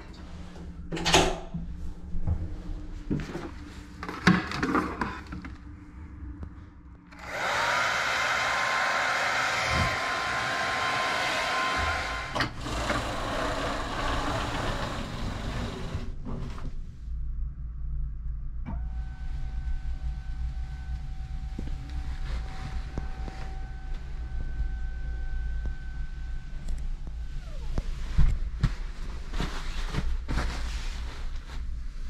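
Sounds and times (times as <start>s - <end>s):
hair dryer running: 7.1s - 13.2s.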